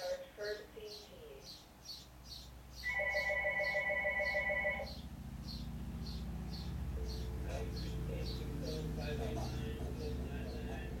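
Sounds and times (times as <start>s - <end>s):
telephone warbling ring: 2.9s - 5.0s.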